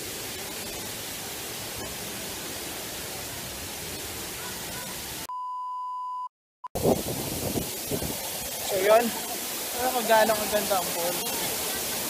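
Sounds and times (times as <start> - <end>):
waterfall rushing: 0.0 - 5.3, 6.8 - 12.0.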